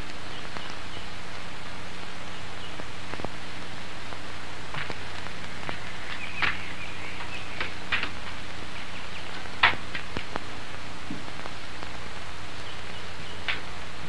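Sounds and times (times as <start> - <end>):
low even hum: 0.0 - 14.0
steady hiss: 0.0 - 14.0
faint clicks: 12.8 - 13.8.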